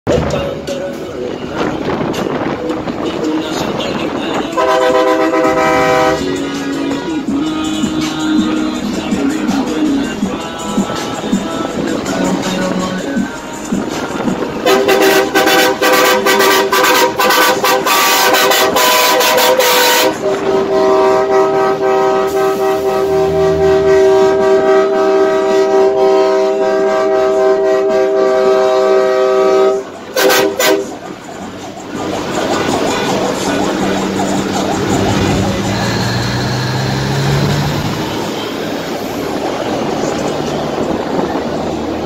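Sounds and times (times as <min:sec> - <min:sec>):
traffic noise: 0:00.0 - 0:42.0
truck air horn blasts: 0:04.3 - 0:06.4, 0:14.5 - 0:31.0.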